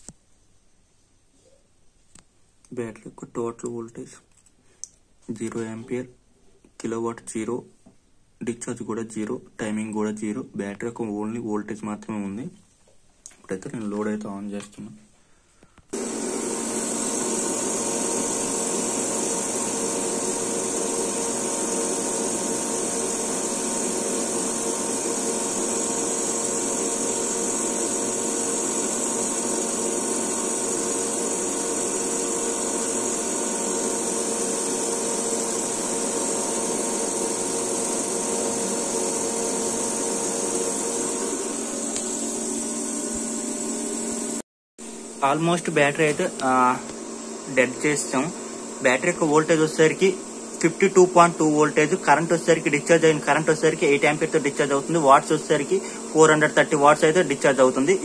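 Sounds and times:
electric motor whirring: 15.9s - 44.4s.

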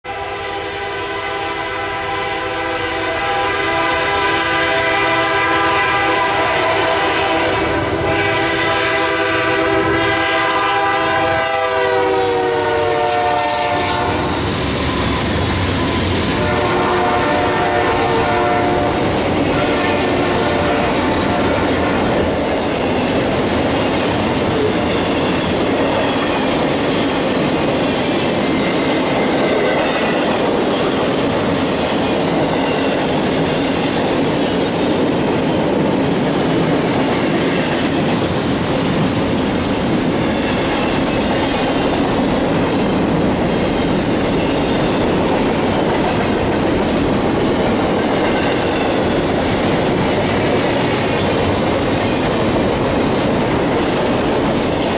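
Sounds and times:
train wheels rumbling on rails: 0.0s - 54.9s
train air horn: 0.1s - 22.1s.

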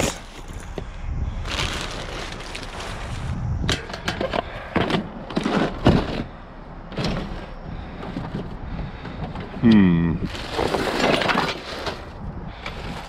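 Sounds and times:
trash bags and cardboard rustling: 0.0s - 13.0s
items clattering in metal dumpster: 3.7s - 6.3s, 6.9s - 9.6s, 10.2s - 12.1s.

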